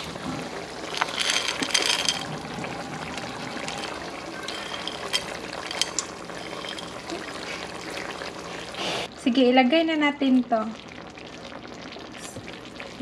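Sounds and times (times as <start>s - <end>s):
peas sliding into pot: 0.8s - 7.0s
peas clicking: 0.9s - 2.3s, 3.7s - 7.0s.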